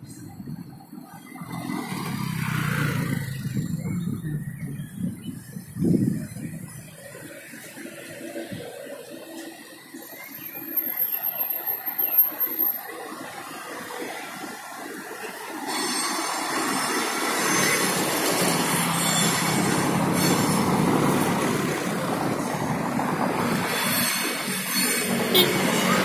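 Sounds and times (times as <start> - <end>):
cars passing: 0.0 - 26.0
motorcycle passing: 1.4 - 5.1
high metallic squeal: 15.5 - 21.2, 23.6 - 26.0.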